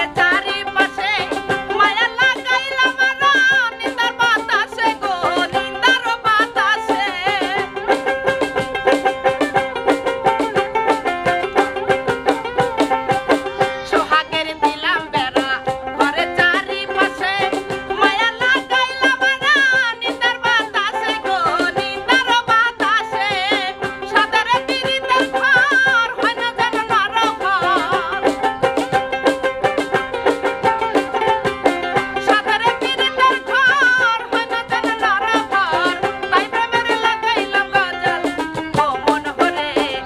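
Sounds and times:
plucked lute: 0.0s - 40.0s
woman singing folk song: 0.0s - 40.0s
steady percussion beat: 7.2s - 13.8s, 26.7s - 39.6s.

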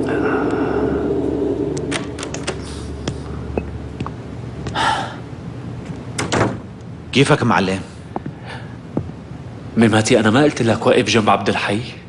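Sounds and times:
door handle and latch clicks: 6.2s - 6.6s.

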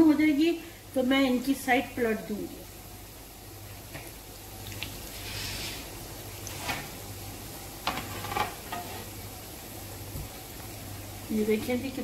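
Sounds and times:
dough sizzling in hot oil: 0.0s - 12.0s
sharp oil crackles: 3.2s - 9.2s.

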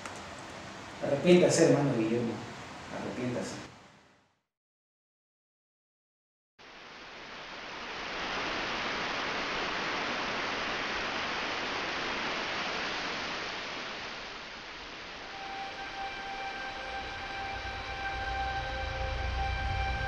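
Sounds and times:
heavy rain pouring: 6.6s - 20.0s.

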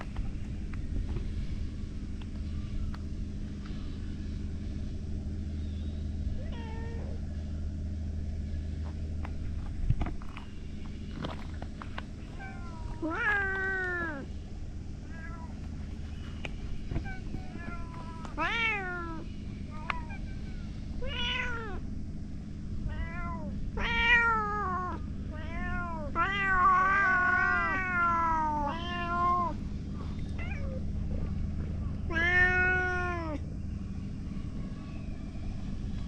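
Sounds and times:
steady low rumble: 0.0s - 36.0s
cats meowing: 6.4s - 7.3s, 12.2s - 14.3s, 15.0s - 15.9s, 16.7s - 21.9s, 22.9s - 29.6s, 30.2s - 31.2s, 32.0s - 33.5s.

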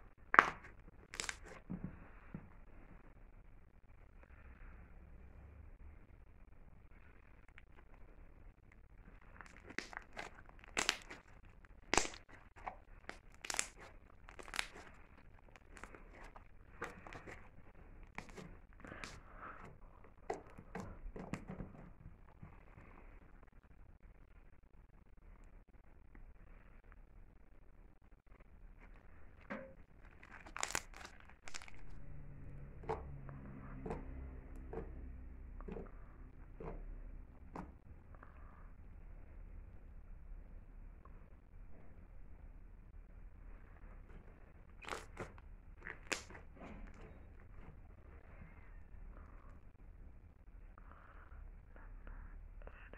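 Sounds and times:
slime squishing in hands: 0.2s - 2.6s, 9.1s - 22.0s, 29.9s - 37.9s, 44.0s - 48.6s.

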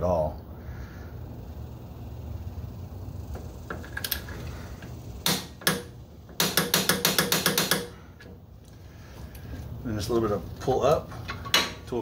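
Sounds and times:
ratchet pawl clicking: 5.2s - 7.9s.

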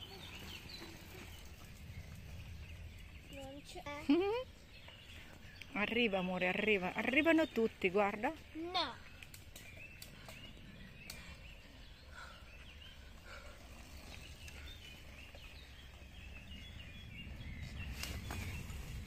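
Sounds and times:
bike tyres on dirt trail: 0.0s - 3.9s, 4.5s - 5.6s, 6.7s - 19.0s
low steady rumble: 0.0s - 8.1s
birds chirping: 0.0s - 19.0s.

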